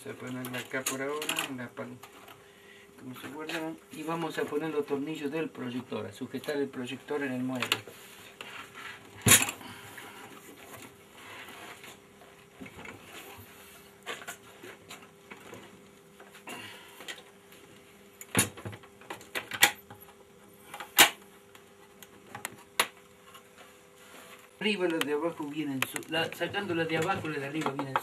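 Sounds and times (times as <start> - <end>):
projector knocks and clunks: 18.3 - 19.8.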